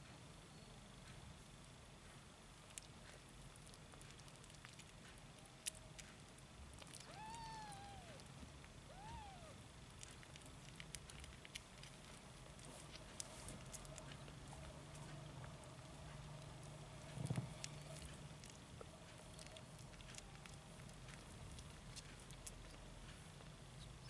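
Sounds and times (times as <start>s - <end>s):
kitten mewing: 6.8s - 8.3s, 8.9s - 9.6s.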